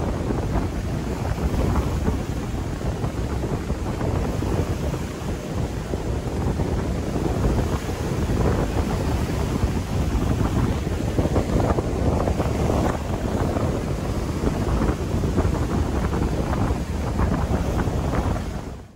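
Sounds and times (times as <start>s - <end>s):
strong wind buffeting microphone: 0.0s - 18.9s
waves splashing on rocky shore: 0.0s - 18.9s.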